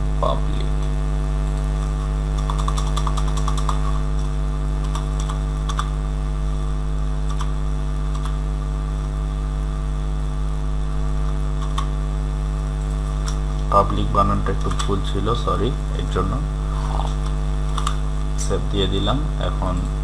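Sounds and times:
electrical mains hum: 0.0 - 20.0
keyboard keystrokes: 2.4 - 5.9.

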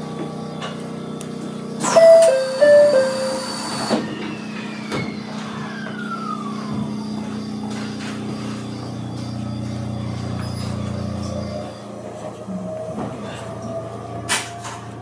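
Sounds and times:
train equipment hum: 1.4 - 4.4.

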